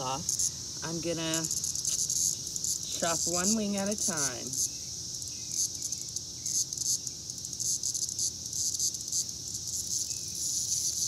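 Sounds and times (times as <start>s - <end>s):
cicadas buzzing: 0.0s - 11.0s.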